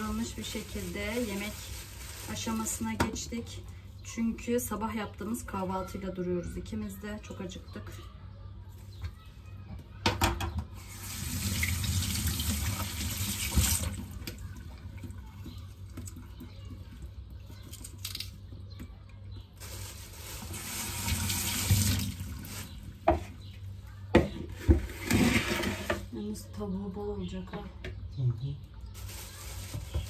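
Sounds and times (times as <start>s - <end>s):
kitchen tap running into sink: 10.8s - 16.2s, 20.5s - 22.4s.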